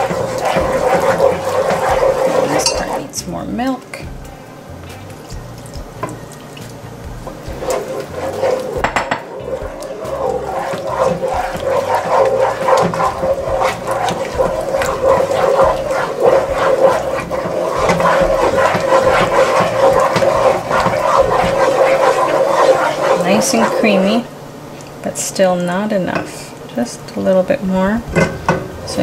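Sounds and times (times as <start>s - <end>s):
milk pouring: 0.0s - 3.2s, 4.8s - 24.0s
wooden spoon stirring in pot: 0.0s - 26.9s.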